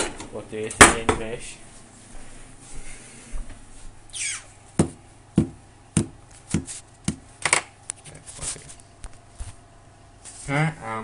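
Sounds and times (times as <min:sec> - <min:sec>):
short falling squeak: 0:04.1 - 0:04.5.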